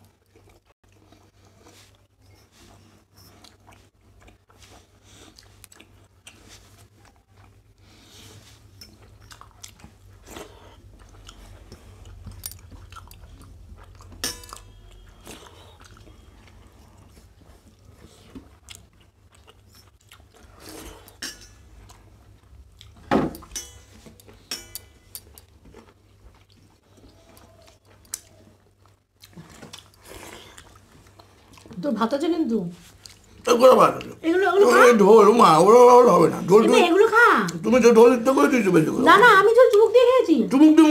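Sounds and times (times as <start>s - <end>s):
chewing and mouth sounds: 0.0s - 23.0s, 24.1s - 31.8s, 32.8s - 34.8s
steel dishes clinking: 23.5s - 25.0s.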